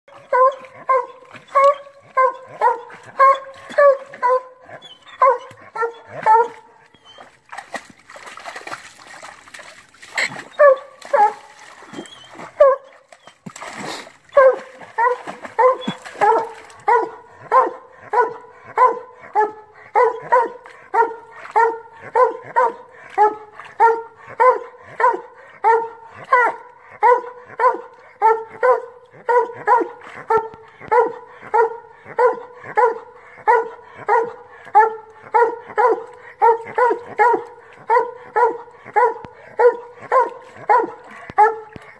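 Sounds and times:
dog barking: 0:00.3 - 0:04.5, 0:05.2 - 0:06.6, 0:14.4 - 0:41.8.

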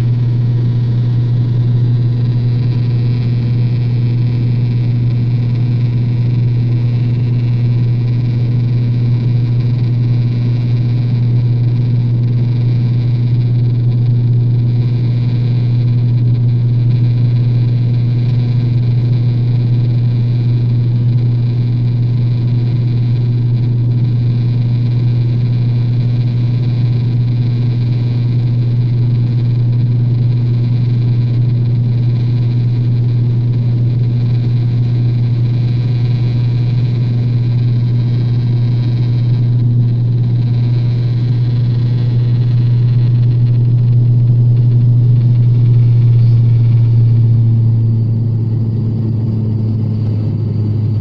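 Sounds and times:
propeller drone: 0:00.0 - 0:51.0
engine and air rush: 0:44.6 - 0:51.0.

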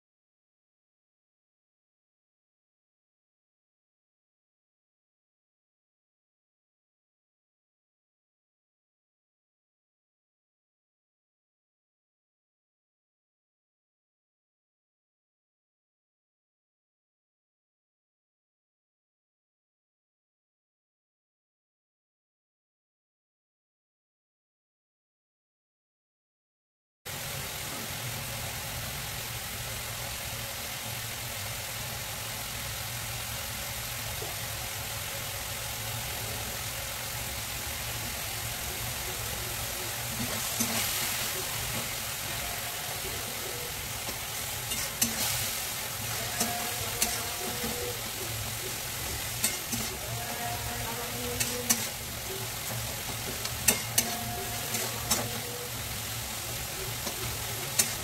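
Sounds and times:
curry sizzling in a pan: 0:27.1 - 0:58.0
spatula scraping a metal pan: 0:40.1 - 0:58.0
spatula clicking on metal: 0:53.1 - 0:55.4, 0:57.0 - 0:58.0.

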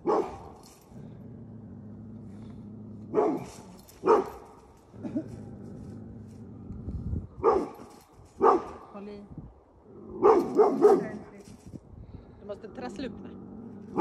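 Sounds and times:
dog barking: 0:00.0 - 0:00.5, 0:03.1 - 0:04.4, 0:07.4 - 0:08.8, 0:10.2 - 0:11.3.

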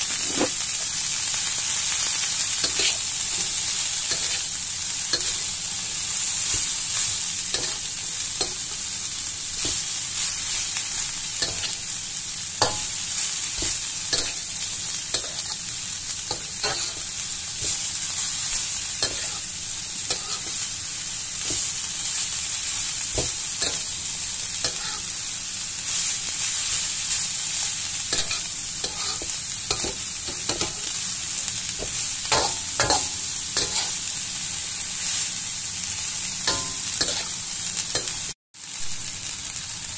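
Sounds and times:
spatula scraping a pan: 0:00.0 - 0:00.7, 0:02.6 - 0:04.5, 0:06.2 - 0:08.8, 0:12.6 - 0:15.6, 0:16.3 - 0:19.5, 0:20.1 - 0:20.8, 0:24.6 - 0:25.2, 0:28.1 - 0:30.9, 0:31.8 - 0:34.0, 0:36.5 - 0:38.1
vegetables sizzling in oil: 0:00.0 - 0:39.9.

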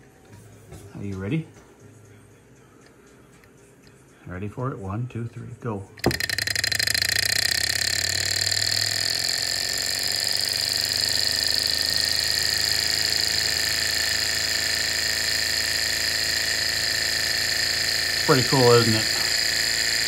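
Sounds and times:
engine mechanical whir and whine: 0:06.0 - 0:20.0.

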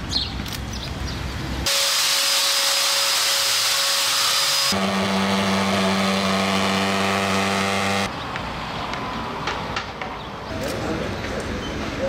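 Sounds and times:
motorized sprayers hissing: 0:01.7 - 0:08.1
small engine running: 0:01.7 - 0:08.1.

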